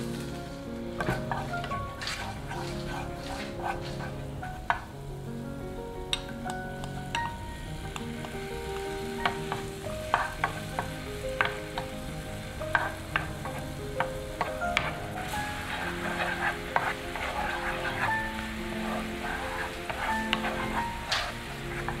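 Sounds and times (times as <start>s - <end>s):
shallots frying in a pan: 0.0s - 22.0s
spatula scraping and tapping pan: 1.0s - 4.9s, 6.1s - 22.0s.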